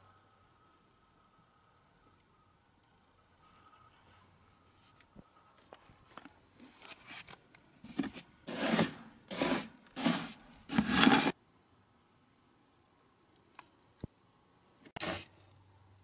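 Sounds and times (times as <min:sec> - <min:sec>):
litter scoop scraping litter tray: 0:07.9 - 0:11.4, 0:15.0 - 0:15.3.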